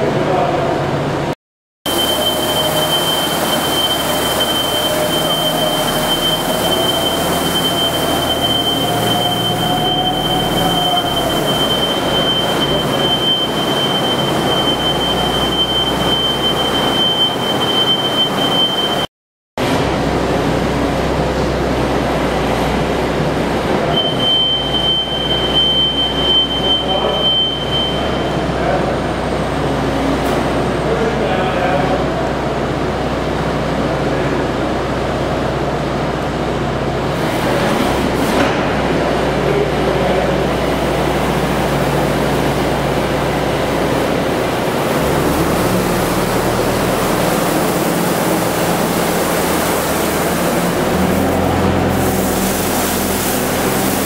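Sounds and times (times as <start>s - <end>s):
thin high whine: 1.9s - 19.1s, 23.9s - 28.9s.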